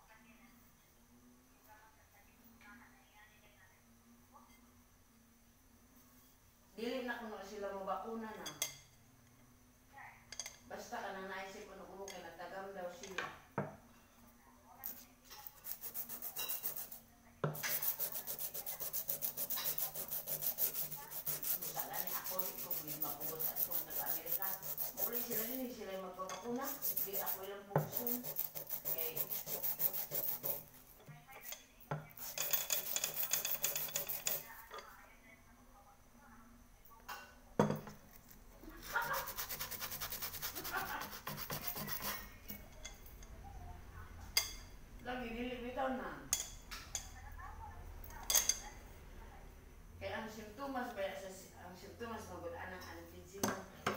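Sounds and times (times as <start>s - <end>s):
sandpaper rubbing on metal pot: 15.4s - 25.7s, 26.5s - 30.8s, 32.2s - 34.6s, 38.7s - 42.3s.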